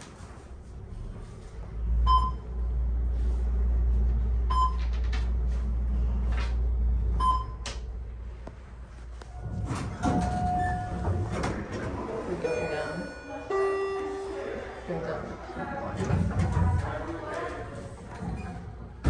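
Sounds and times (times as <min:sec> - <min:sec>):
elevator low rumble: 0:00.0 - 0:19.0
short electronic beeps: 0:02.1 - 0:02.4.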